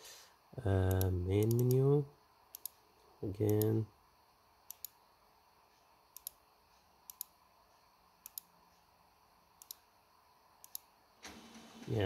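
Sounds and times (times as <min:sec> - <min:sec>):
computer mouse button clicking: 0:08.2 - 0:08.5, 0:09.6 - 0:09.8.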